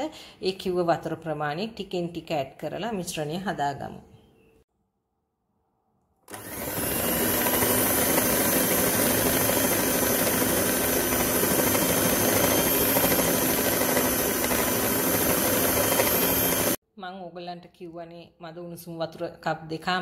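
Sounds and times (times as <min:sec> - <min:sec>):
electric mixer motor whine: 0:06.3 - 0:16.8.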